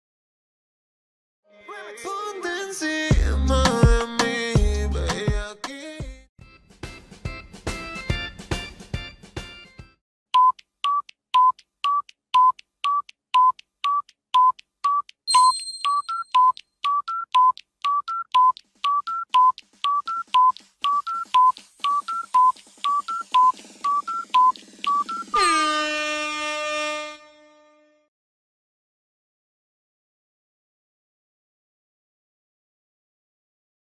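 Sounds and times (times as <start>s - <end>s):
electronic tick-tock beeps: 10.4s - 25.6s
high chime: 15.3s - 16.4s
music clip: 15.3s - 27.4s.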